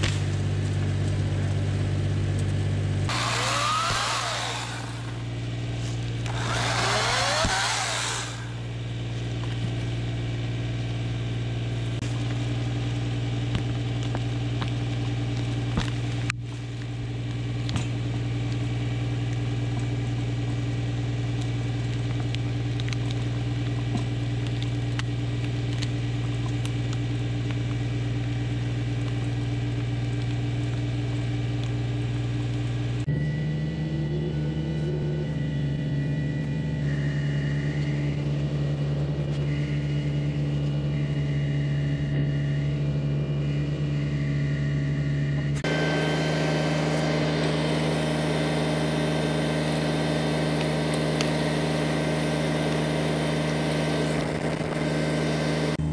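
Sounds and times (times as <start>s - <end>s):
tractor diesel engine running: 0.0s - 13.1s, 33.0s - 55.9s.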